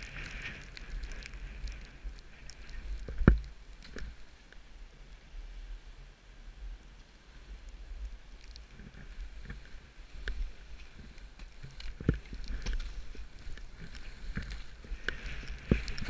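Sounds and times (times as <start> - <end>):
skis scraping over snow: 0.0 - 3.0, 8.9 - 16.0
wind rumble on microphone: 0.0 - 16.0.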